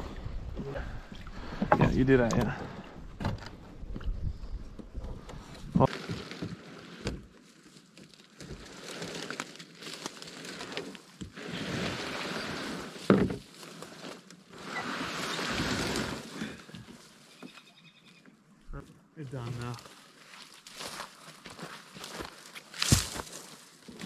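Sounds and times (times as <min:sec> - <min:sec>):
rustling of dry brush: 0:05.9 - 0:17.7, 0:19.5 - 0:24.0.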